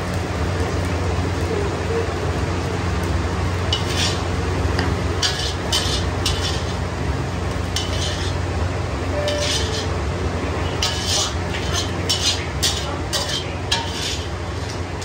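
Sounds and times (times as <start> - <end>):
spatula scraping wok: 3.3 - 15.0.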